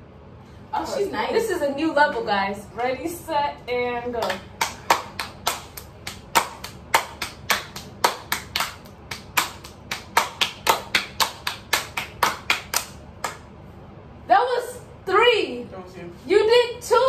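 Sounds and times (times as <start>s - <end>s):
hands clapping rhythmically: 4.1s - 13.6s.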